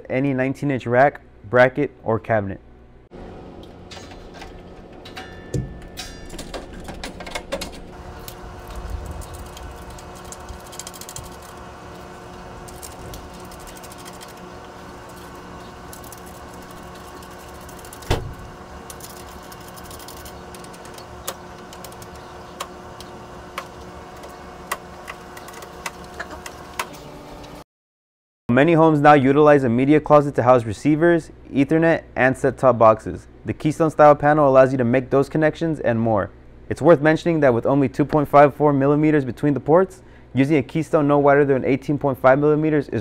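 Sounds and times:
steady hum: 1.1 - 27.6
metal panel rustling and knocking: 3.8 - 8.0.

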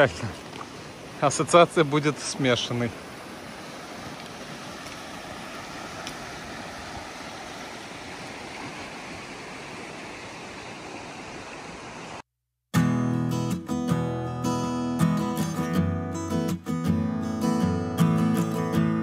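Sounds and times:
river rushing over stones: 0.0 - 12.2.

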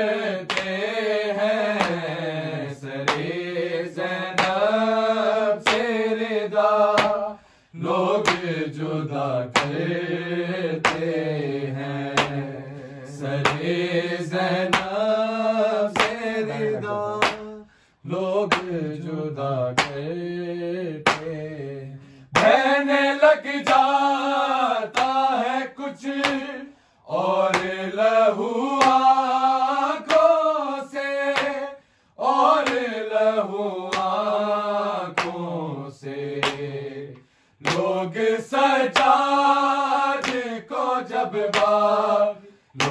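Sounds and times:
men chanting: 0.0 - 42.9
hand strikes on chest: 3.1 - 3.4, 6.9 - 7.3, 9.5 - 9.8, 17.2 - 17.6, 21.0 - 21.3.

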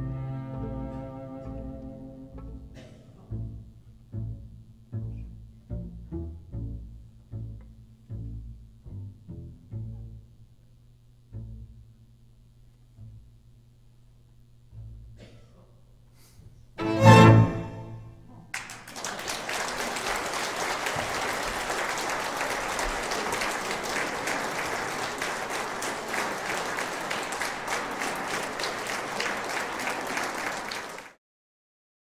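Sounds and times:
orchestra playing final chord: 16.8 - 18.2
audience applauding: 18.5 - 31.2.

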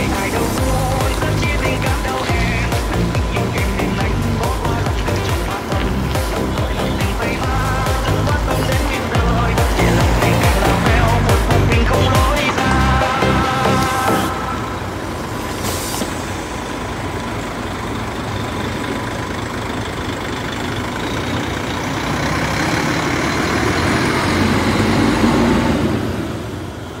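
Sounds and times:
bus diesel engine: 0.0 - 27.0
air brake hiss: 15.4 - 16.5.

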